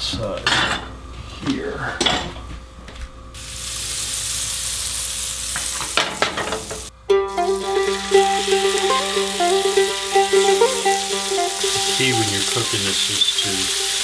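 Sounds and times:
butter and oil sizzling in pan: 0:03.4 - 0:14.0
background music sustained notes: 0:07.0 - 0:14.0.

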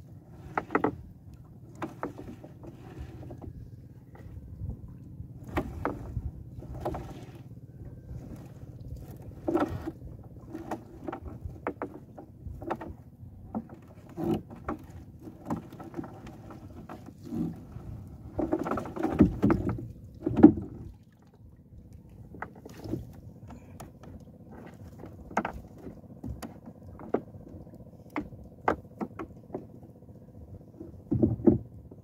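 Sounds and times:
net knocking against hull: 0:18.3 - 0:21.0, 0:31.1 - 0:31.7.

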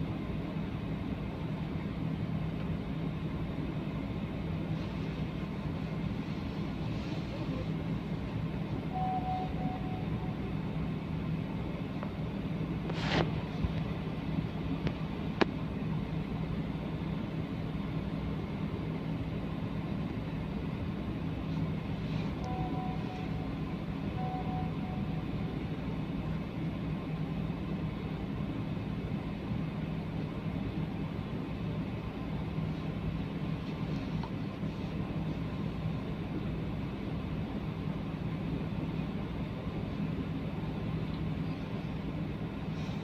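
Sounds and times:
car idling hum: 0:00.0 - 0:43.0
faint brief tones: 0:08.9 - 0:10.6, 0:22.4 - 0:25.4.

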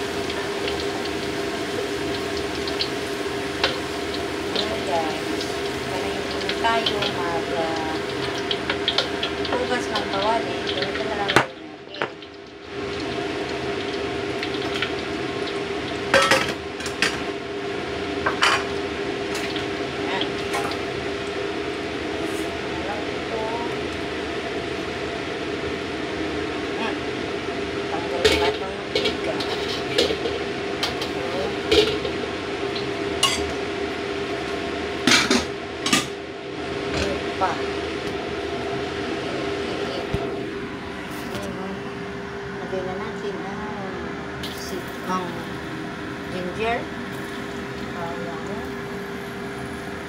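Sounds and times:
stove hiss and hum: 0:00.0 - 0:50.0
utensils and dishes clattering: 0:16.1 - 0:17.2, 0:28.2 - 0:32.1, 0:33.2 - 0:33.5, 0:35.1 - 0:36.2.

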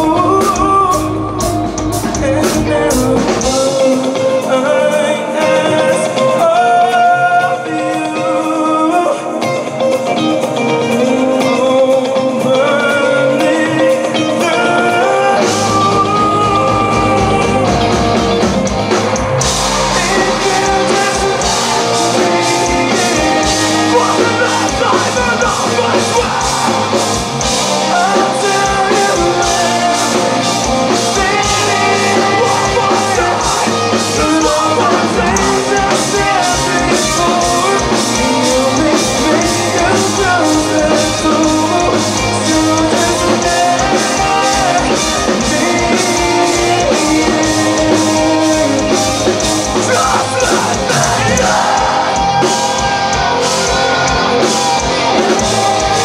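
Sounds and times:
man singing into a microphone: 0:00.0 - 0:18.4, 0:19.3 - 0:56.0
live metal band playing: 0:00.0 - 0:56.0.

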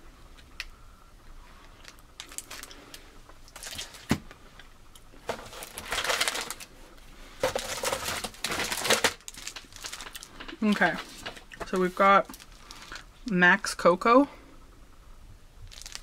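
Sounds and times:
plastic snack wrappers rustling: 0:01.6 - 0:04.2, 0:05.0 - 0:06.7, 0:07.4 - 0:13.1, 0:15.6 - 0:16.0.

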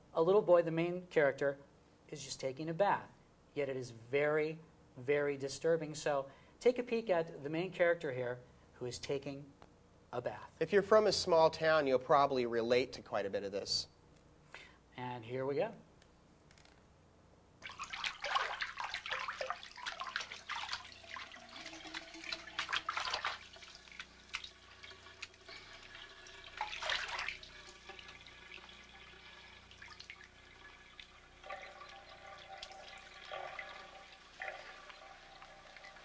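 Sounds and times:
bathwater splashing and sloshing: 0:17.6 - 0:36.0.

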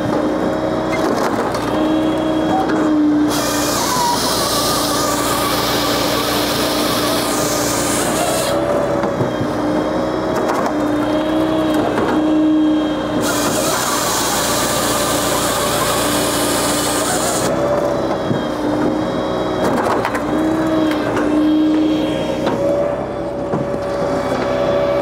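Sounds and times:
tractor and hydraulics humming: 0:00.0 - 0:25.0
saw hissing through log: 0:03.2 - 0:08.8, 0:13.0 - 0:17.7.

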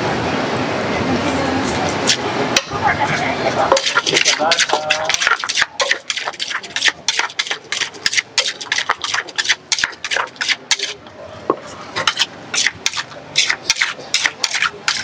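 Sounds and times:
pestle pounding in clay mortar: 0:03.7 - 0:11.0, 0:12.0 - 0:15.0.

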